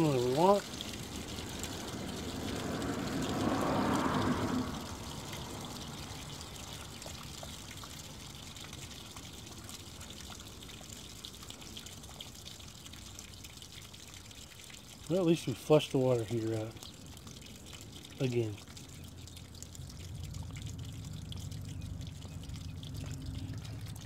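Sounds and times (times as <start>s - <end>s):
water draining from tank: 0.0s - 24.0s.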